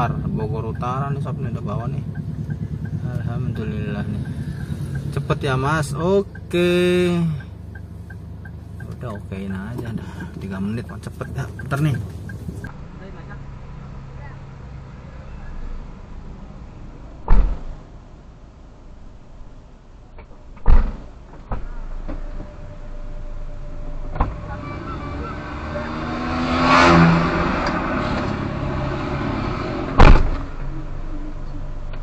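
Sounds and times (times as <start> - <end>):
car engine idling: 0.0 - 16.8, 21.2 - 26.3, 27.2 - 32.0
car doors slamming: 17.2 - 17.8, 20.6 - 22.2, 29.9 - 30.5.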